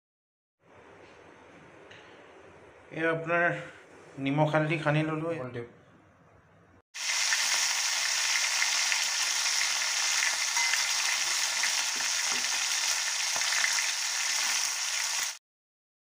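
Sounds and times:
fish frying in oil: 7.0s - 15.4s.

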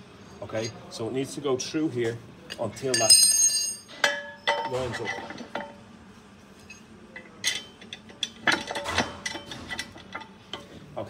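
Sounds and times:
steel parts clicking and clanking: 2.5s - 5.8s, 6.7s - 10.7s.

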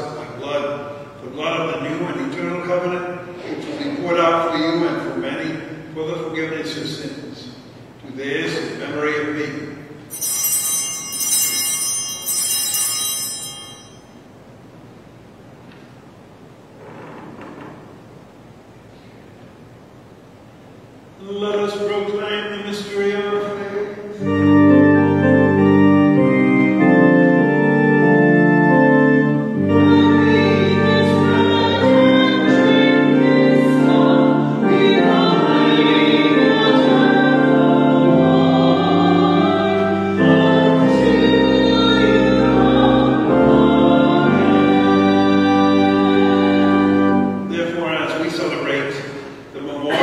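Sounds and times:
church organ chords: 8.5s - 14.0s, 21.2s - 49.2s
voices singing: 29.6s - 47.7s.

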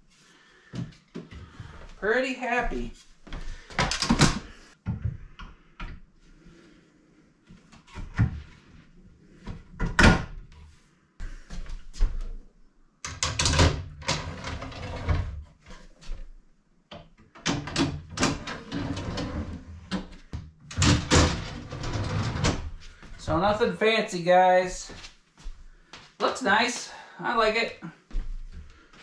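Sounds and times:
drawer sliding rumble: 18.2s - 20.0s, 20.7s - 22.8s.

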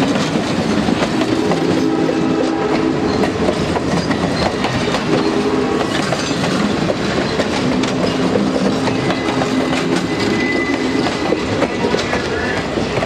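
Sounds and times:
train rumble: 0.0s - 13.0s
train wheels clicking over rail joints: 0.0s - 13.0s
faint high squeal: 10.0s - 12.6s.

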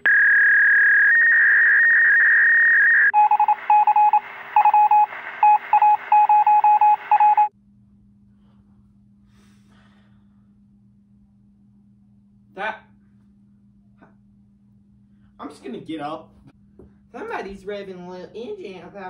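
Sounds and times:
steady high telephone tone: 0.0s - 7.5s
faint hum: 0.0s - 19.0s
rapid rhythmic beeps: 3.1s - 7.5s.

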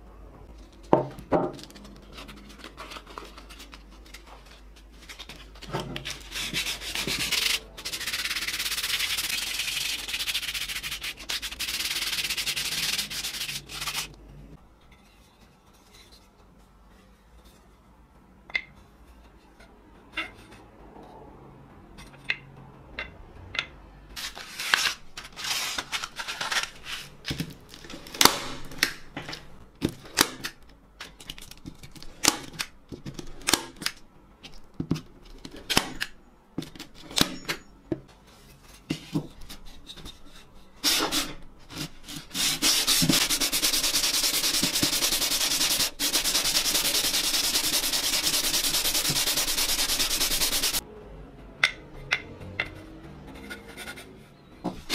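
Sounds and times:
knocks and taps of tools: 22.2s - 23.8s
hand plane rubbing on sandpaper: 42.3s - 50.8s.

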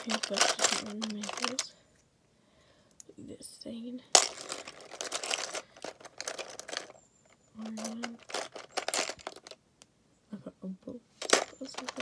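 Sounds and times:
plastic pieces clattering in box: 0.0s - 1.7s, 4.2s - 7.0s, 7.6s - 9.6s, 11.2s - 12.0s.

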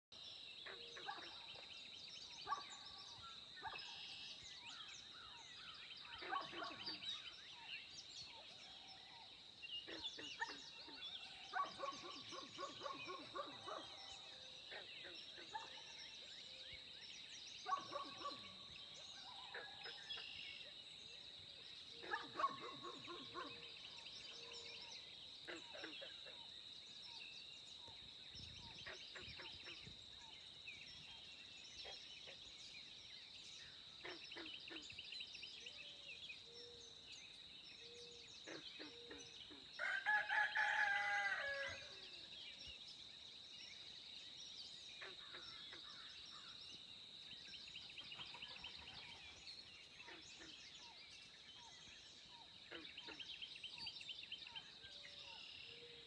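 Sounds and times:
bird calls: 21.9s - 27.2s.

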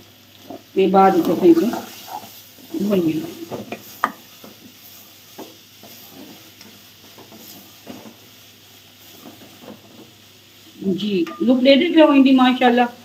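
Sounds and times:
meat sizzling in oil: 0.0s - 13.0s
wooden spatula scraping a pot: 1.2s - 8.3s.

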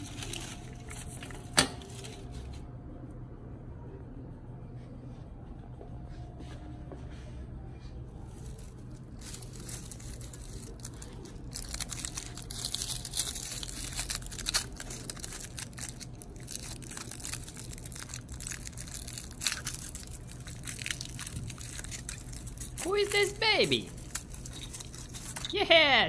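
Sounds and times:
aluminium foil crinkling: 0.0s - 2.4s, 8.3s - 25.7s.

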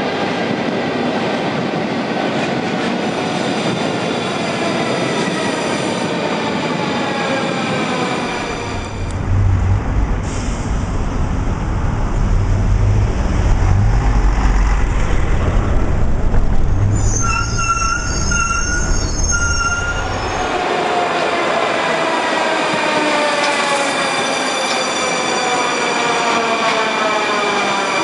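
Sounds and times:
train motors and wheels whining: 6.7s - 20.7s
bus diesel engine rumble: 8.7s - 20.5s.

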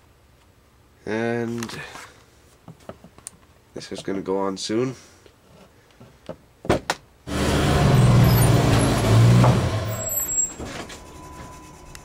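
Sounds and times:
vehicle engine noise: 7.3s - 12.0s.

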